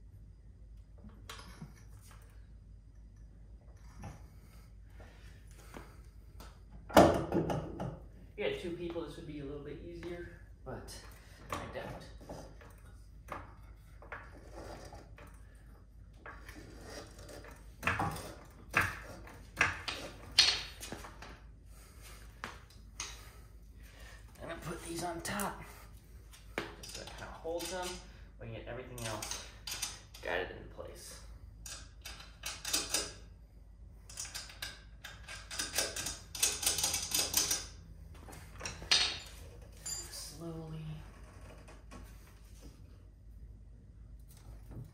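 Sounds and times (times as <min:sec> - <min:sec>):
small metallic clicks and clinks: 0:29.0 - 0:30.3.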